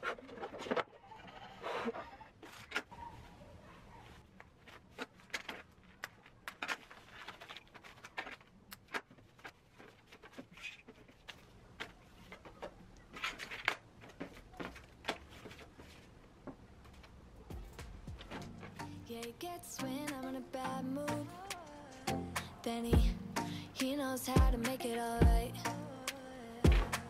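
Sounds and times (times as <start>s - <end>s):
net bags and paper rustling: 0.0s - 18.8s.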